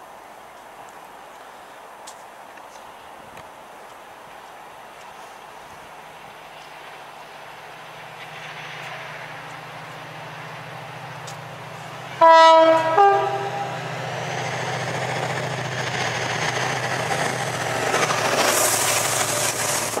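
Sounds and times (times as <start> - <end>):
diesel locomotive engine: 4.1 - 20.0
locomotive two-tone horn: 12.2 - 13.8.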